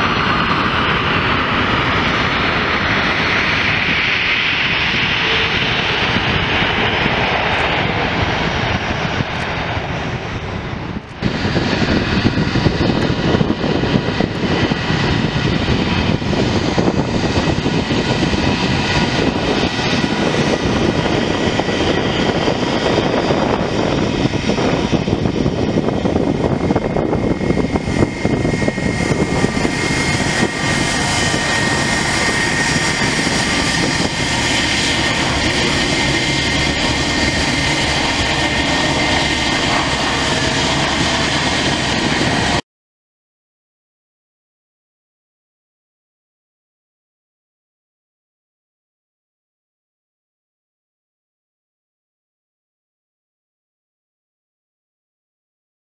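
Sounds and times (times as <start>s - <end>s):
high whine: 0.0s - 42.6s
jet engines running: 0.0s - 42.6s.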